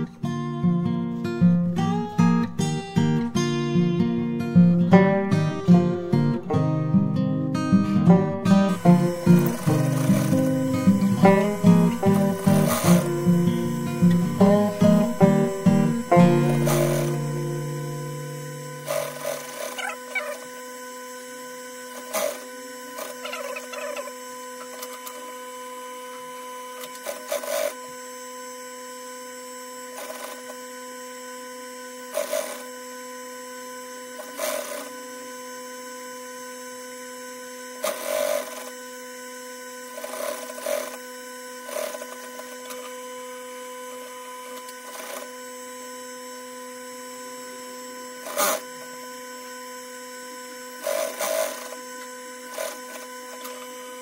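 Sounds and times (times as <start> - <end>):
sewing machine motor humming: 4.8 - 28.4, 29.3 - 54.0
sewing machine stitching: 8.5 - 20.5, 21.9 - 25.2, 26.8 - 27.8, 30.0 - 30.6, 32.1 - 32.6, 34.2 - 34.9, 37.8 - 38.7, 39.9 - 41.0, 41.6 - 42.9, 44.6 - 45.3, 48.2 - 48.7, 50.8 - 51.9, 52.5 - 53.7.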